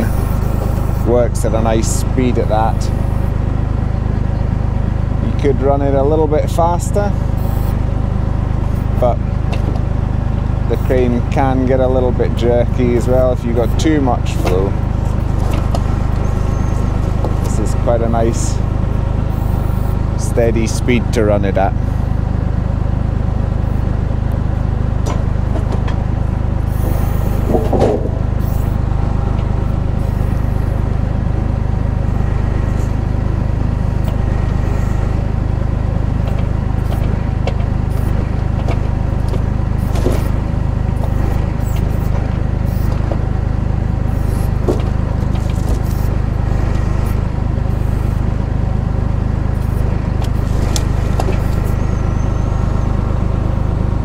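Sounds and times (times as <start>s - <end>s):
tractor engine running: 0.0s - 54.0s
crane clicks and knocks: 9.4s - 9.9s, 14.3s - 17.7s, 25.0s - 26.2s, 26.9s - 30.4s, 36.2s - 43.4s, 44.5s - 47.3s, 49.5s - 51.8s.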